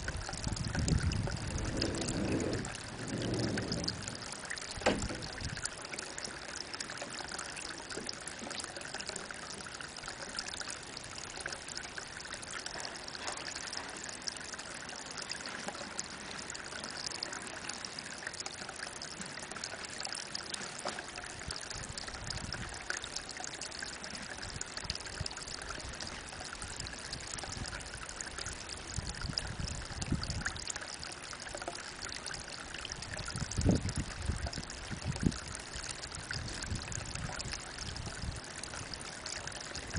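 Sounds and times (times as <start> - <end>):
water trickling into pond: 0.0 - 39.9
low rumbles: 0.2 - 5.7.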